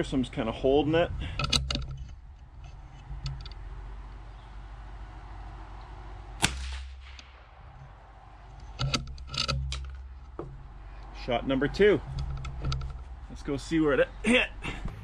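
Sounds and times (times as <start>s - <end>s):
sharp clicks: 5.8s - 10.4s
rifle shot: 6.4s - 7.5s.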